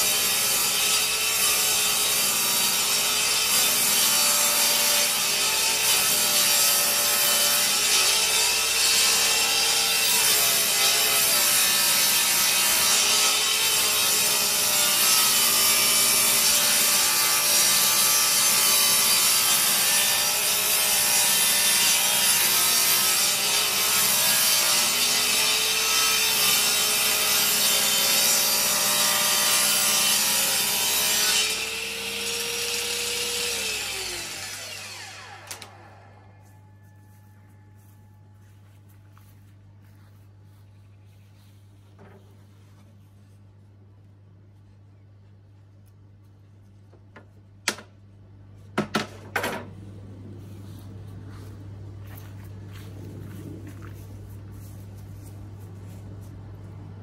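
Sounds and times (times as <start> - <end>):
table saw cutting wood: 0.0 - 36.4.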